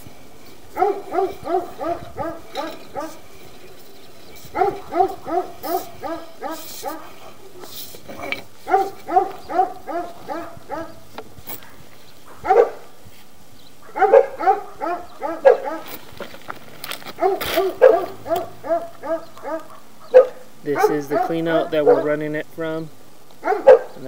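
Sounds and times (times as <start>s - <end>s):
dog barking: 0.7s - 3.4s, 4.4s - 7.8s, 8.6s - 11.0s, 11.6s - 12.9s, 13.8s - 16.0s, 17.2s - 22.2s, 23.4s - 24.0s.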